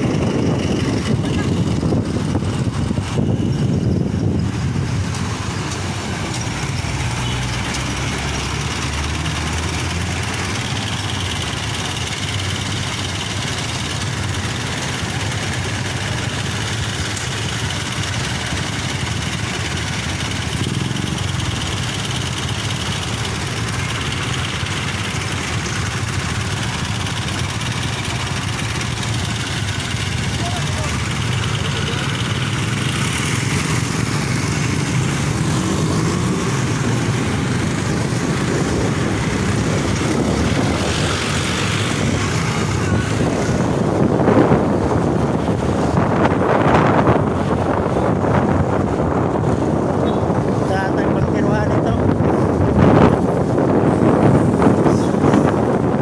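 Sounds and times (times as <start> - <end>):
motorcycle engine rumble: 0.0 - 56.0
vehicle engines idling in traffic: 0.0 - 56.0
motorcycle engine idling: 10.3 - 35.6.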